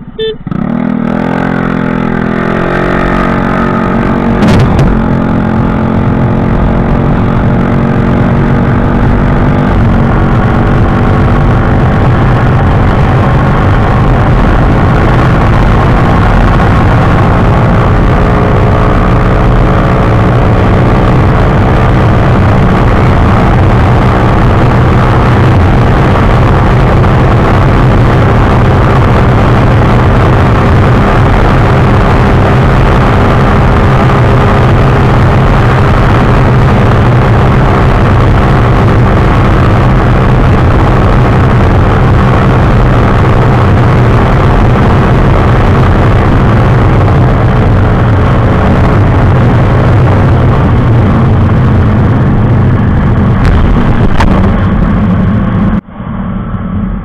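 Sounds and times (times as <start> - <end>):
wind rushing over microphone: 0.8 - 57.0
sharp knock: 4.4 - 5.0.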